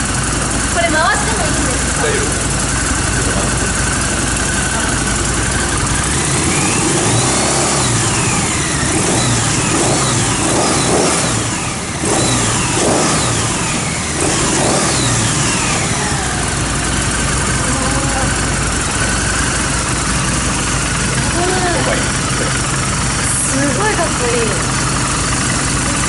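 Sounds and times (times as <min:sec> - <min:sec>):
motorcycle engine revving: 0:00.0 - 0:26.0.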